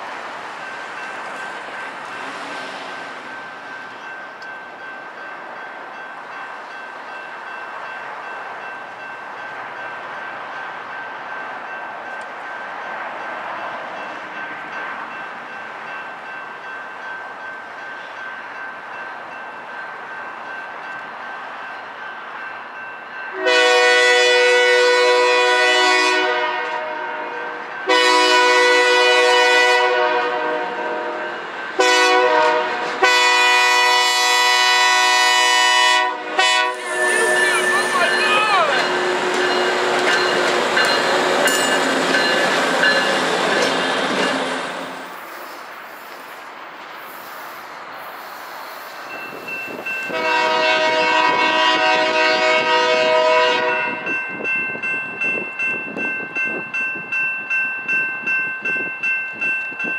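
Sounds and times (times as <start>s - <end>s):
diesel locomotive rumbling: 0.0s - 57.2s
locomotive horn blasts: 23.4s - 39.8s, 50.1s - 54.1s.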